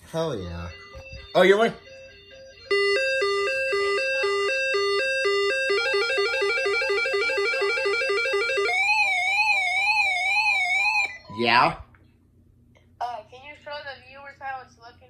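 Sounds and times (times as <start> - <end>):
alternating electronic alert tones: 0.0 - 11.8
wailing siren tone: 0.0 - 11.8.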